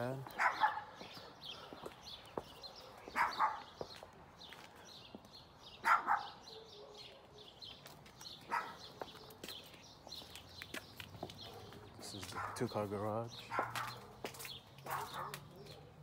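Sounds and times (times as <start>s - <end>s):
dog barking: 0.3s - 1.4s, 2.6s - 3.8s, 5.8s - 7.6s, 8.5s - 9.6s, 11.4s - 12.7s, 13.4s - 16.0s.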